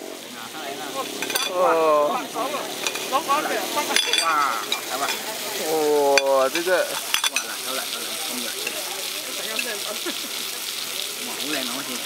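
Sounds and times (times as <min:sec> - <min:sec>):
seafood sizzling on hot plate: 0:00.0 - 0:12.0
serving utensils clinking: 0:01.1 - 0:01.7, 0:02.7 - 0:09.8.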